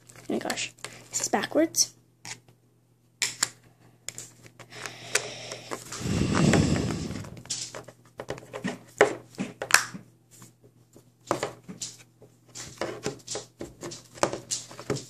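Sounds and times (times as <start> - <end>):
plastic rubbing rumble: 5.9 - 7.7.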